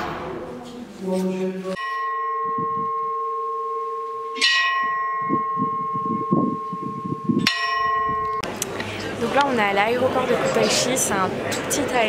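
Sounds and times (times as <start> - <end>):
church bell ringing: 1.8 - 8.4.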